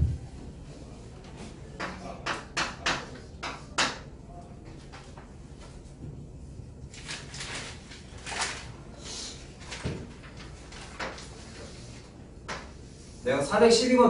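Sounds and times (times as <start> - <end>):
paper pages rustling: 6.9 - 8.9, 9.5 - 12.2.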